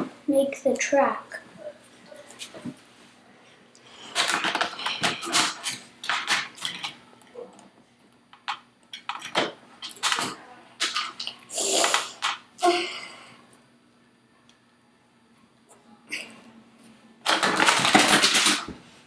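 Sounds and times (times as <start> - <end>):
plastic toy track pieces clattering: 4.1 - 6.9, 17.3 - 18.7.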